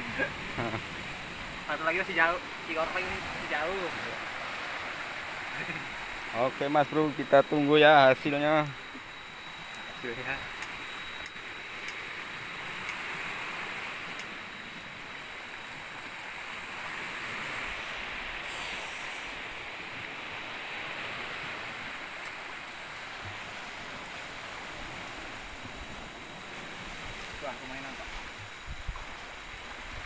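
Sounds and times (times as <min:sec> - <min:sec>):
sea water and small waves: 0:00.0 - 0:30.0
brief hiss: 0:18.4 - 0:19.4.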